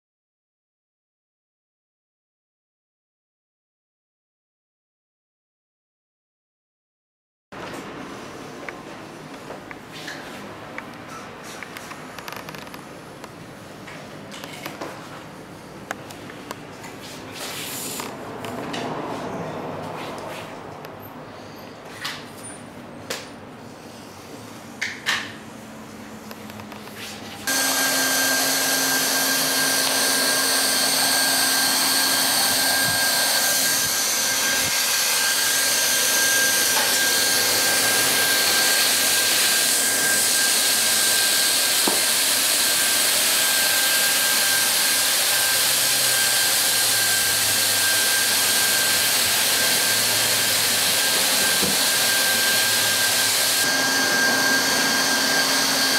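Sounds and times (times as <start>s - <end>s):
hot-air welding gun blower whining: 27.4s - 55.9s.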